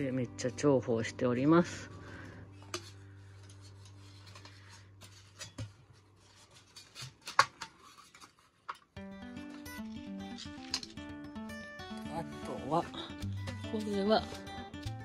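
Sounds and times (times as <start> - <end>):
background music: 0.0 - 5.5, 9.0 - 15.0.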